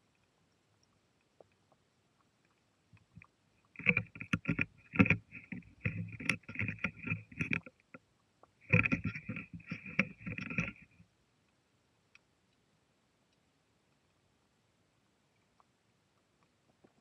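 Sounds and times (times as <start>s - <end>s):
water sloshing: 3.0s - 8.0s, 8.6s - 11.0s.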